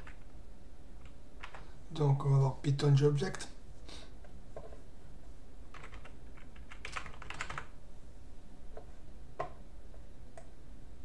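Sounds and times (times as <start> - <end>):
typing on computer keyboard: 5.7 - 7.7.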